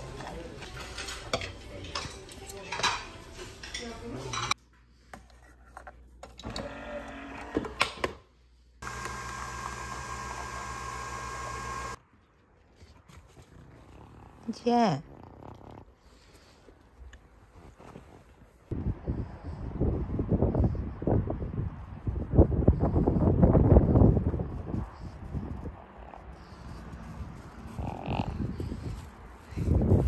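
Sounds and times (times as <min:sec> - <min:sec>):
clatter of plates and cutlery: 0:00.2 - 0:04.6
coffee machine whirring hum: 0:08.8 - 0:12.0.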